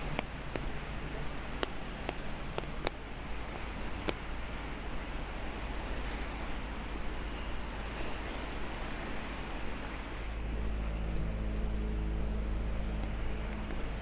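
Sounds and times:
raindrops tapping on umbrella: 0:00.0 - 0:04.3
rain hissing on wet street: 0:00.0 - 0:14.0.

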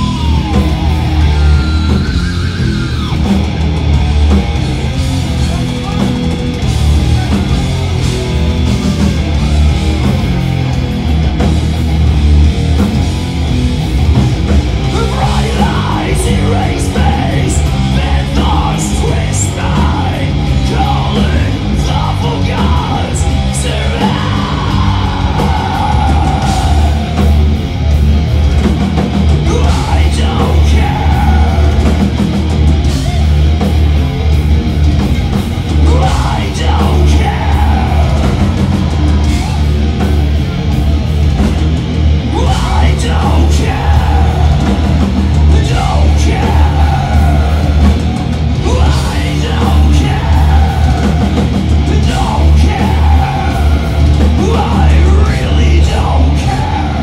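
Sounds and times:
vocalist singing: 0:00.0 - 0:03.6, 0:14.4 - 0:27.5, 0:29.2 - 0:32.4, 0:35.6 - 0:40.2, 0:42.2 - 0:57.0
metal band playing live: 0:00.0 - 0:57.0.

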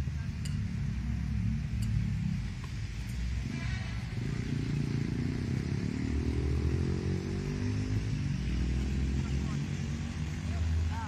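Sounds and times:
engine running: 0:00.0 - 0:11.0
second engine rising in pitch: 0:03.4 - 0:11.0.

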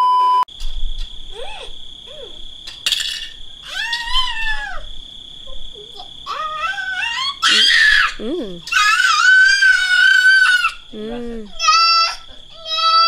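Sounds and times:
insects chirring: 0:00.5 - 0:13.0
woman whimpering: 0:08.2 - 0:08.6, 0:11.0 - 0:11.6.

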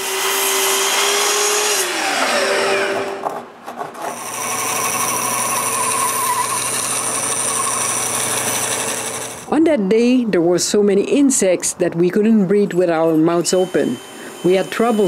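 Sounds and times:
bandsaw cutting a board: 0:00.0 - 0:09.5, 0:13.5 - 0:15.0
miter saw cutting wood: 0:00.0 - 0:09.5, 0:13.3 - 0:15.0.

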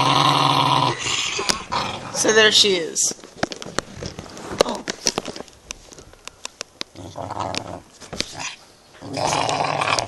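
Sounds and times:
small dog growling: 0:00.0 - 0:02.4, 0:06.9 - 0:10.0.

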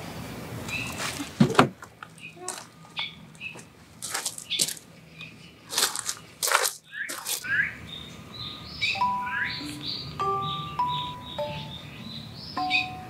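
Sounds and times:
birds chirping: 0:00.6 - 0:01.0, 0:01.9 - 0:13.0
rustling handling noises: 0:00.8 - 0:05.0, 0:05.7 - 0:07.5
soft chime-like music: 0:09.0 - 0:13.0.

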